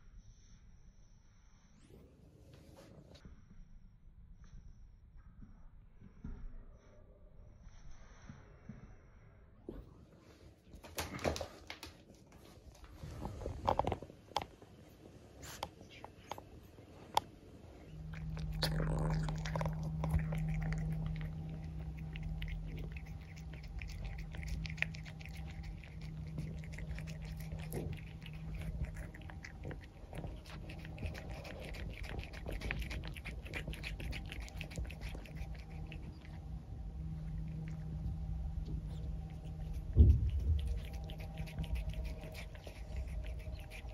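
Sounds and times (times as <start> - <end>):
cat chewing and crunching: 10.8 - 43.9
steady low hum: 12.0 - 43.9.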